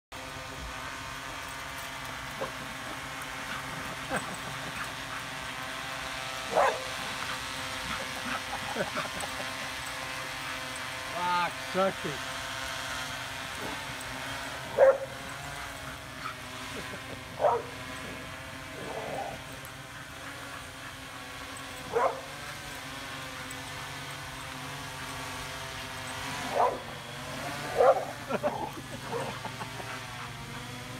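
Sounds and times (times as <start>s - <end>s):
drone propellers humming: 0.1s - 30.9s
dog barking: 6.5s - 6.9s, 14.8s - 15.1s, 17.4s - 17.7s, 21.9s - 22.3s, 26.5s - 26.8s, 27.8s - 28.1s
small dog barking: 6.5s - 7.0s, 21.9s - 22.3s.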